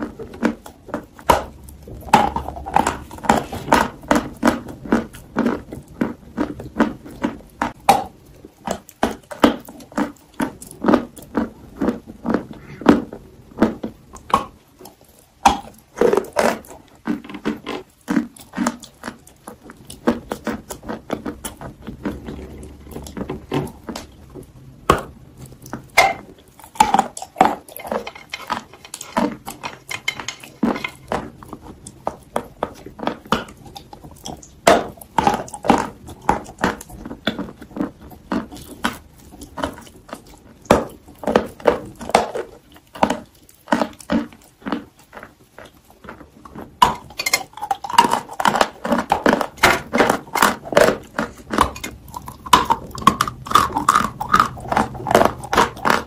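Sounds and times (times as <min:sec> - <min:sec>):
chewing with wet mouth sounds: 0:00.0 - 0:56.0
biting into chocolate treat: 0:24.9 - 0:56.0.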